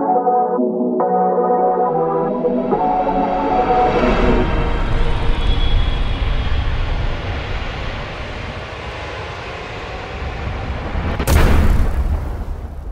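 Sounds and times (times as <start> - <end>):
loud hit: 10.9 - 12.9.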